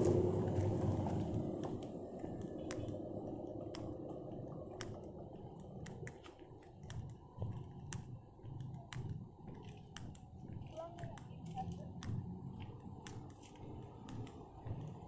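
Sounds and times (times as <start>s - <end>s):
vehicle noise: 0.0s - 7.1s, 11.2s - 15.0s
faint low rumble: 0.0s - 15.0s
footsteps on dirt track: 0.0s - 15.0s.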